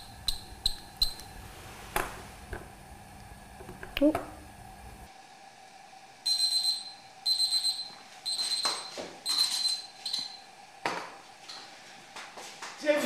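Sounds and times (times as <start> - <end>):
kitchen timer beeping: 0.0 - 1.4, 6.3 - 10.5.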